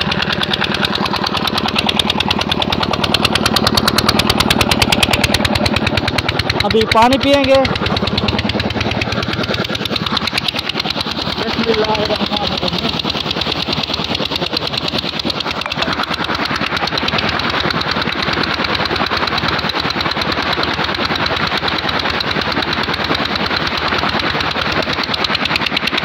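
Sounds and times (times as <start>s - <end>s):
pump engine chugging: 0.0s - 26.0s
water gushing onto ground: 0.0s - 26.0s.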